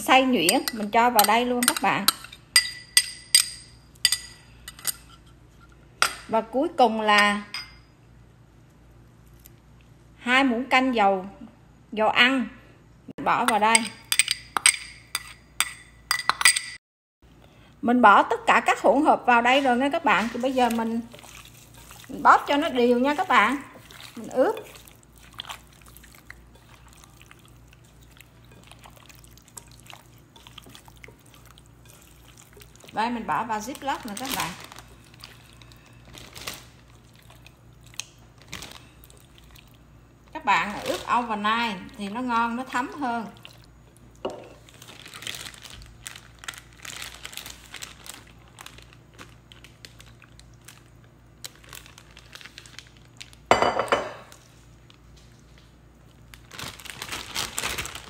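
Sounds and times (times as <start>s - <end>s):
glass bowl clinking: 0.5s - 5.1s, 7.2s - 8.0s, 13.5s - 16.8s, 44.2s - 44.6s, 53.5s - 54.3s
wet squelches of kneaded meat: 19.0s - 53.4s
plastic bag crinkling: 33.5s - 39.4s, 44.6s - 53.6s, 56.2s - 58.0s.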